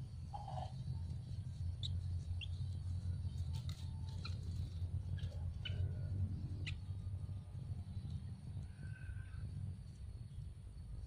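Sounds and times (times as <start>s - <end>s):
steady low rumble: 0.0s - 11.0s
nestlings chirping: 0.4s - 7.0s.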